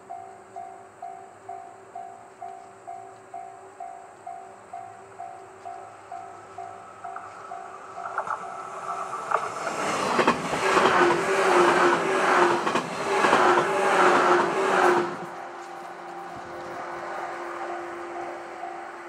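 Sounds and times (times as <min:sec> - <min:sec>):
level crossing warning bell: 0:00.0 - 0:11.0, 0:13.5 - 0:19.0
electric train passing at speed: 0:00.0 - 0:19.0
wheels clicking over rail joints: 0:05.6 - 0:17.2.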